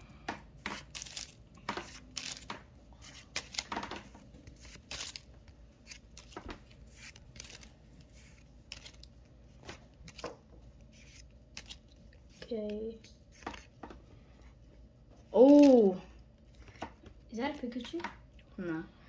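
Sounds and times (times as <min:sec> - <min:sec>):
trading cards swishing and snapping: 0:00.6 - 0:14.0.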